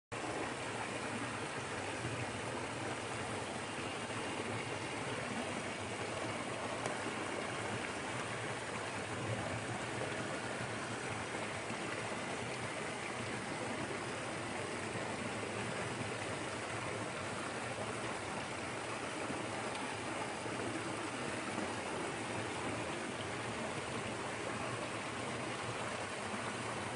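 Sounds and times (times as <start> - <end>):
waterfall rushing into pool: 0.2 - 26.9.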